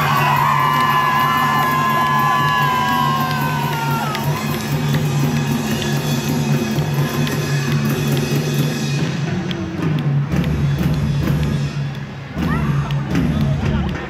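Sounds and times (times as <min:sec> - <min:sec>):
crowd noise: 0:00.0 - 0:14.0
music with drum beat over loudspeakers: 0:00.0 - 0:14.0.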